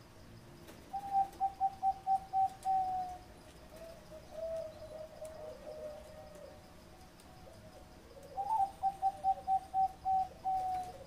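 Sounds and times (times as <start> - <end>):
dove cooing: 0.9 - 11.0.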